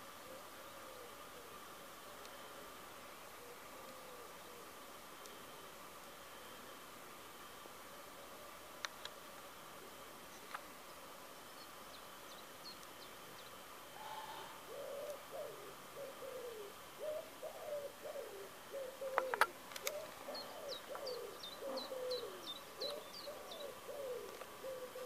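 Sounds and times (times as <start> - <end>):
bird calling low notes: 13.9 - 25.0.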